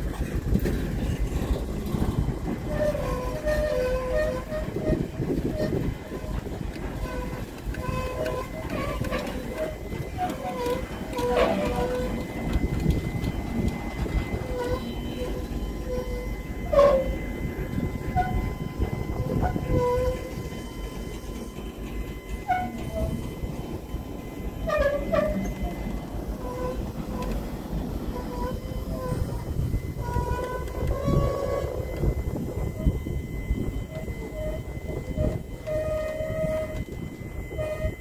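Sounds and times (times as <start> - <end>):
rumble of wheels on track: 0.0 - 38.0
wheels squeaking: 0.0 - 38.0.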